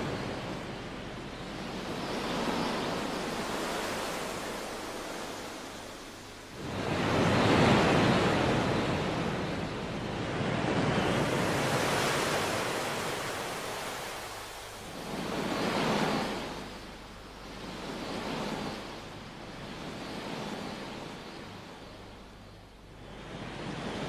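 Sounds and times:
waves breaking on shore: 0.0 - 24.0.

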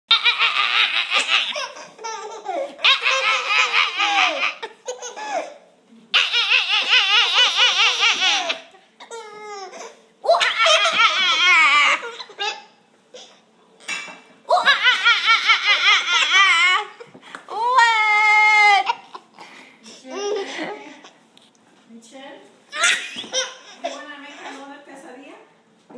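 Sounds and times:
baby squealing: 0.1 - 5.5, 6.2 - 12.7, 14.5 - 17.0, 22.7 - 24.0
baby laughing: 0.1 - 13.3, 14.5 - 19.4, 20.0 - 21.2, 22.7 - 24.6.

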